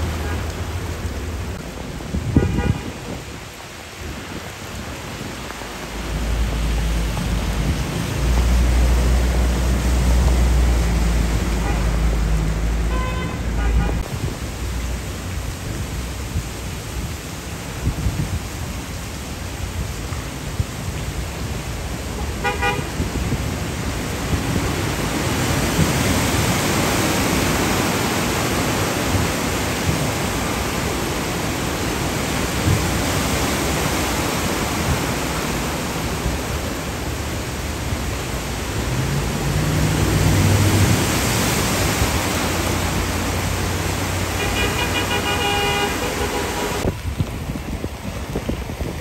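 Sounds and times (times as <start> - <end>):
heavy rain: 0.0 - 49.0
car horn honking: 2.3 - 3.0, 11.5 - 12.1, 12.8 - 14.0, 22.2 - 22.9, 44.3 - 46.9
tyres spraying water: 3.6 - 17.8, 18.6 - 47.2
vehicle engine passing: 38.5 - 46.8.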